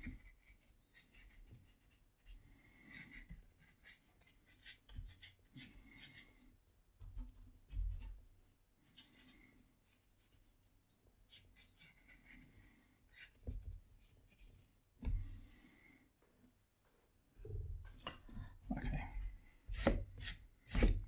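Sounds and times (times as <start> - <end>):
paintbrush scratching on paper: 0.0 - 6.5, 7.7 - 10.6, 11.2 - 14.7, 19.1 - 21.0.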